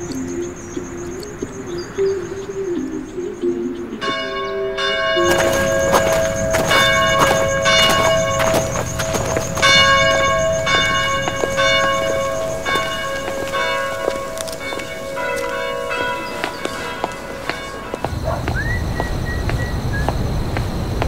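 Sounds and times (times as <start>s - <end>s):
church bells ringing: 0.0s - 21.0s.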